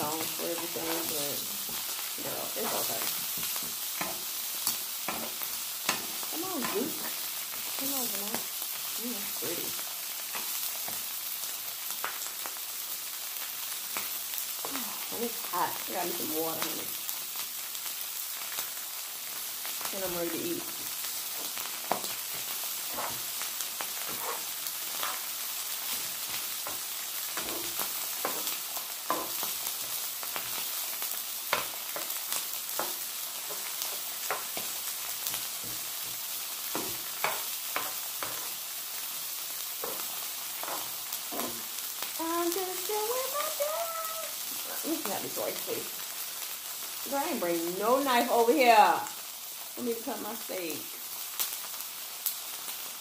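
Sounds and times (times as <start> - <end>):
rice sizzling on a griddle: 0.0 - 53.0
spatula scraping a griddle: 21.3 - 30.6, 39.8 - 41.7.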